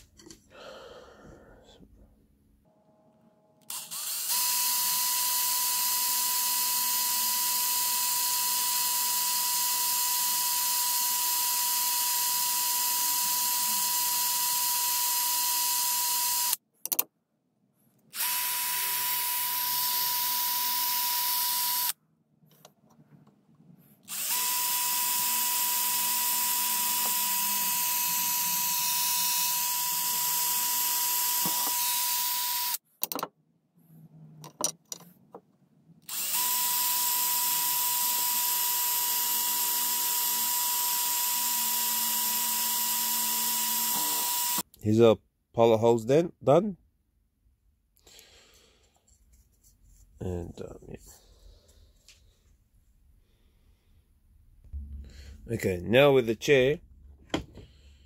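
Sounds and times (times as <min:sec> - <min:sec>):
cordless drill whining: 0:03.6 - 0:16.6, 0:18.1 - 0:22.0, 0:24.0 - 0:32.8, 0:36.0 - 0:44.7.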